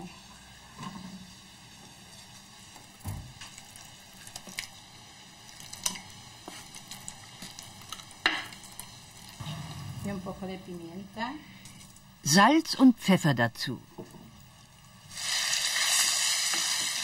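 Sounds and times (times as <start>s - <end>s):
meat sizzling in hot oil: 0.0s - 9.7s, 14.4s - 17.0s.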